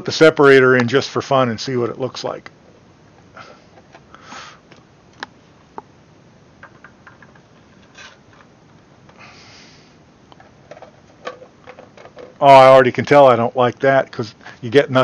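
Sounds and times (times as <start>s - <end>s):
plastic parts clicking: 10.3s - 12.4s.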